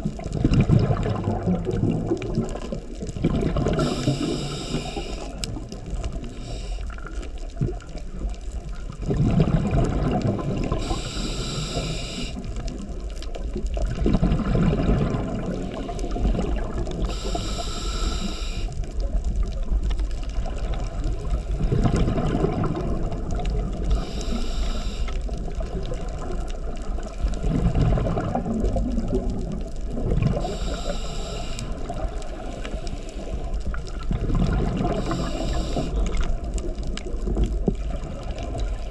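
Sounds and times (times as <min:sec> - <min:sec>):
low bubbling on exhale: 0:00.0 - 0:38.9
low rumble of water: 0:00.0 - 0:38.9
regulator hiss on inhale: 0:03.7 - 0:05.6, 0:06.2 - 0:07.4, 0:10.7 - 0:12.7, 0:15.5 - 0:16.4, 0:17.0 - 0:19.0, 0:23.8 - 0:25.3, 0:30.3 - 0:33.8, 0:34.8 - 0:36.3.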